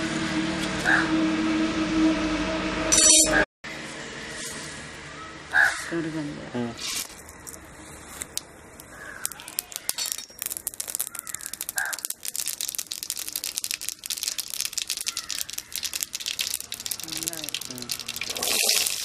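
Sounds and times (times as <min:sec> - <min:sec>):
crow cawing: 0:05.5 - 0:05.9, 0:08.9 - 0:09.4, 0:11.1 - 0:12.0, 0:14.2 - 0:15.9
seeds popping in hot oil: 0:08.2 - 0:19.0.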